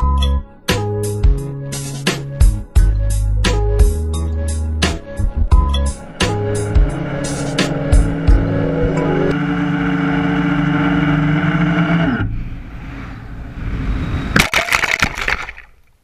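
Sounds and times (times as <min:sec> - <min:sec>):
quadcopter motors whining: 0:06.0 - 0:12.3
rush of air: 0:12.3 - 0:14.4.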